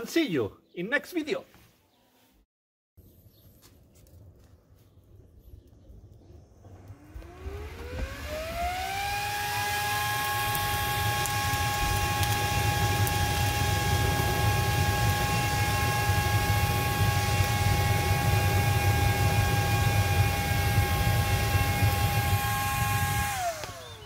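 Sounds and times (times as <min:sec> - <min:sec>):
small fan whining: 0:06.4 - 0:24.0.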